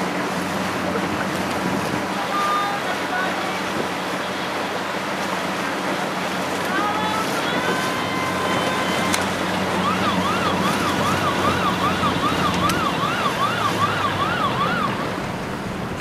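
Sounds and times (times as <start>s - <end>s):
low motor hum: 0.0s - 16.0s
wind and water hiss: 0.0s - 16.0s
emergency siren sweeping: 7.0s - 15.3s.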